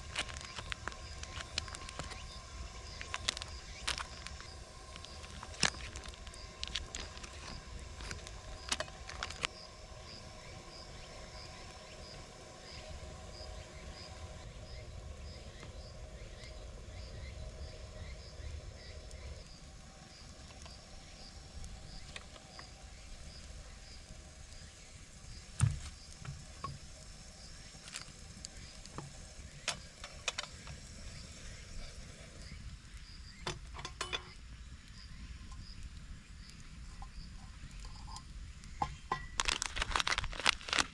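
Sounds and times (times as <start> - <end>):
plastic food packets crinkling: 0.0 - 2.3, 2.9 - 9.5, 39.3 - 40.9
low steady rumble: 0.0 - 33.4.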